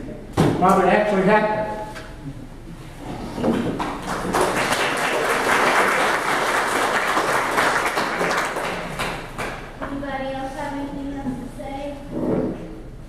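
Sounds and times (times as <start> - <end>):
audience clapping: 3.5 - 9.8.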